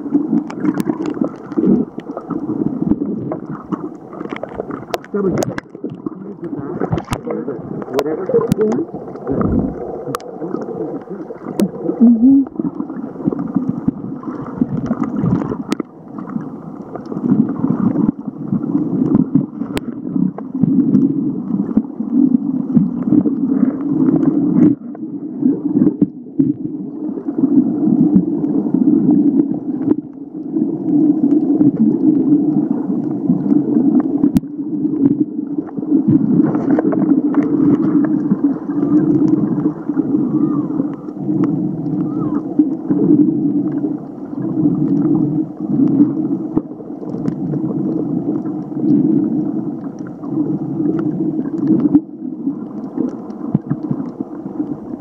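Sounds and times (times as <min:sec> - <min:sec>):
muffled underwater rushing water: 0:00.0 - 0:55.0.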